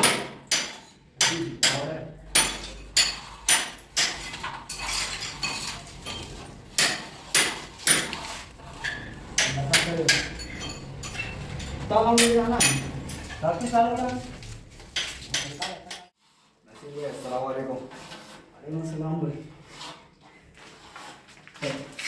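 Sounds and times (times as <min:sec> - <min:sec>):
hammer tapping: 0:06.7 - 0:13.8.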